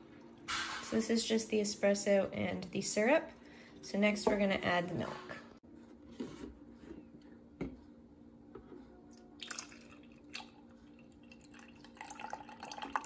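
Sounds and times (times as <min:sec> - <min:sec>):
milk pouring and splashing: 0:09.4 - 0:13.0.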